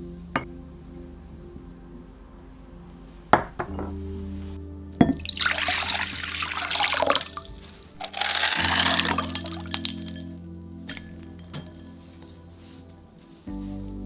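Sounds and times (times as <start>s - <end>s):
water pouring into glass bowl: 5.0s - 10.3s.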